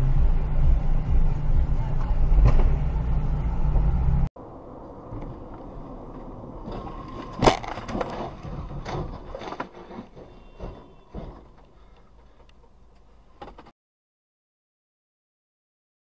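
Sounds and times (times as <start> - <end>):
road noise: 0.0 - 13.7
clattering knocks and scrapes: 6.1 - 12.5.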